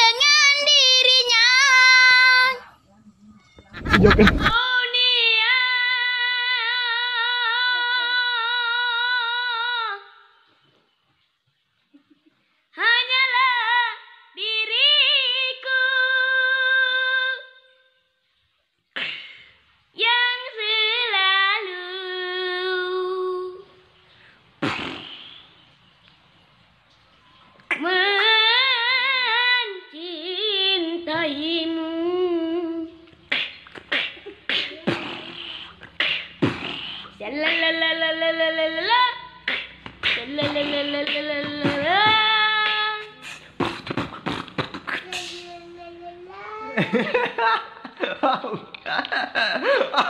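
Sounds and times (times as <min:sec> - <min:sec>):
sharp breathy bursts: 0:24.0 - 0:25.7, 0:33.3 - 0:37.2, 0:43.1 - 0:45.6
boy singing held note: 0:45.0 - 0:46.8.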